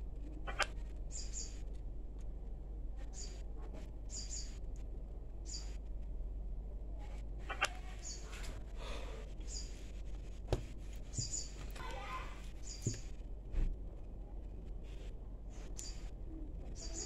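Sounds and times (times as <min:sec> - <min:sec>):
steady low hum: 0:00.0 - 0:17.0
short high bird chirps: 0:04.1 - 0:04.6, 0:11.2 - 0:11.6.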